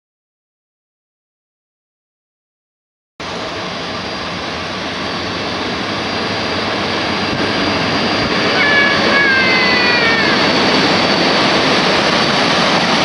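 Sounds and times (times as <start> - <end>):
train rushing and rolling: 3.2 - 13.0
thin high whine: 5.3 - 13.0
wheels or brakes squealing: 7.5 - 13.0.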